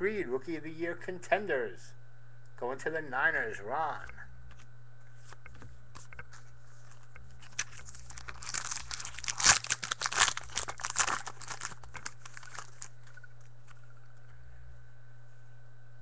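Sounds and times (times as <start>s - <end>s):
foil wrapper crinkling: 6.3s - 14.0s.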